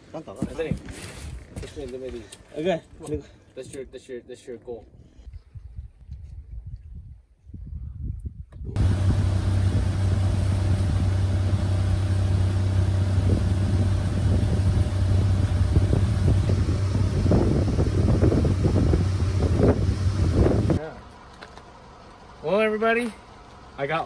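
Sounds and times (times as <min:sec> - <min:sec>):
outboard motor humming: 0:08.8 - 0:23.8.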